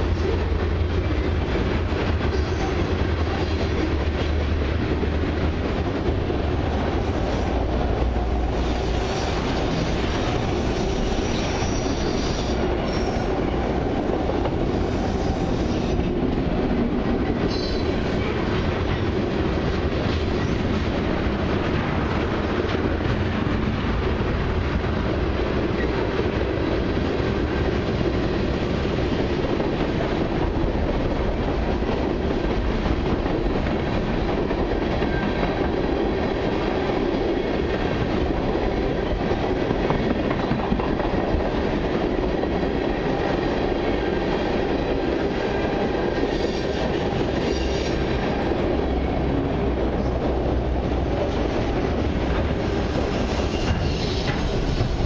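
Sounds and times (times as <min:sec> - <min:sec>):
train wheels rumbling and rattling: 0:00.0 - 0:55.0
high wheel squeals: 0:11.1 - 0:13.3, 0:53.0 - 0:55.0.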